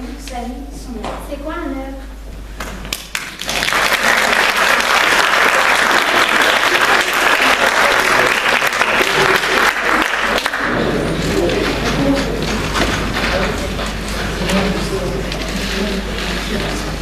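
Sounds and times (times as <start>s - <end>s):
audience applauding: 2.9s - 14.0s.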